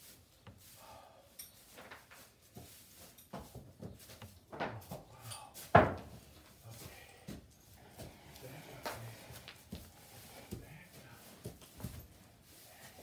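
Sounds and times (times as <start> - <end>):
rustling straw: 0.0 - 7.1, 7.7 - 13.0
horses knocking in stalls: 1.6 - 12.4.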